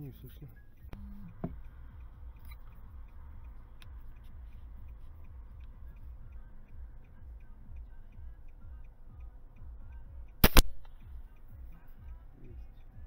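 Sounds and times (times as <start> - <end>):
faint ticking: 0.0 - 13.0.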